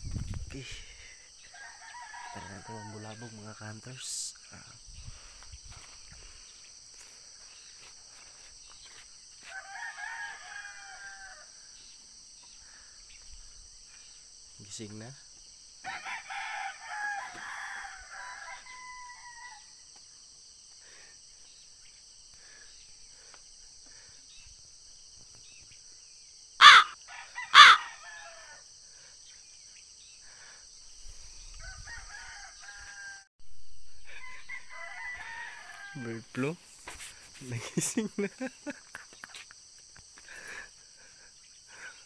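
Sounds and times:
insects buzzing: 0.0 - 42.0
roosters crowing: 1.4 - 4.0, 9.4 - 11.8, 15.8 - 19.9, 26.6 - 28.8, 31.5 - 33.3, 33.9 - 36.6.

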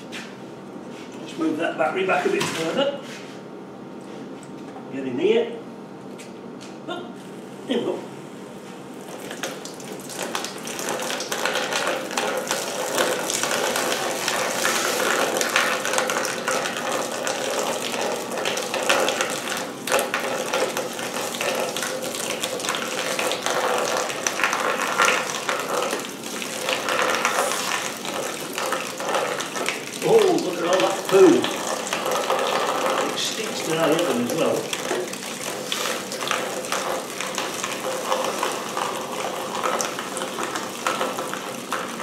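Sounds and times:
pump whirring: 7.2 - 42.0
petrol splashing into plastic tub: 9.1 - 42.0.

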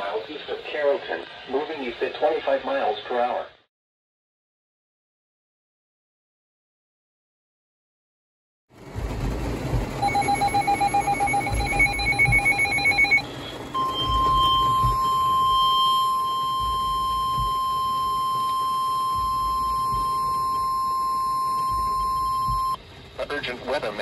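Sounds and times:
steady warning alarm tone: 9.9 - 22.8
rapid pulsing beep: 10.0 - 22.8.

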